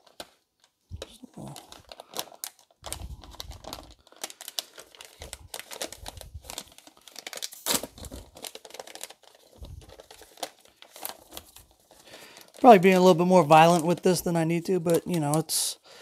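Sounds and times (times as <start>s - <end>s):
plastic bag crinkling and tearing: 0.0s - 16.0s.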